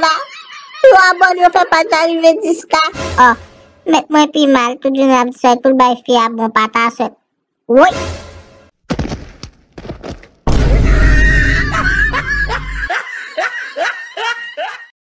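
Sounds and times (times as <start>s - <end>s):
cartoon crashing noises: 8.9s - 12.9s
loud hit with deep bass: 10.5s - 11.8s
rapid laughing: 10.8s - 14.9s.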